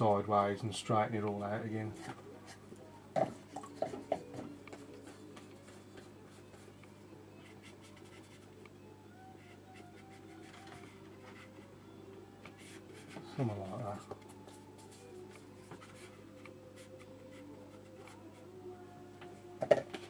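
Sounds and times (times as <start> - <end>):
brush scratching on paper: 7.4 - 8.5, 12.6 - 13.4, 14.4 - 18.4.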